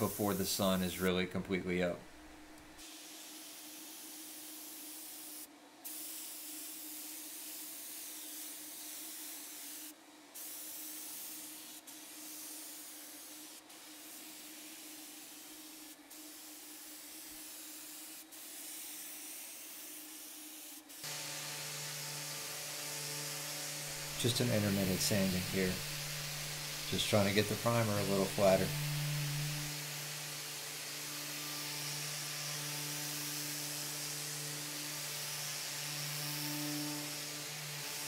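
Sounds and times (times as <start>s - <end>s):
spray gun hissing: 0.0s - 1.1s, 2.8s - 38.0s
orbital sander running: 21.0s - 38.0s.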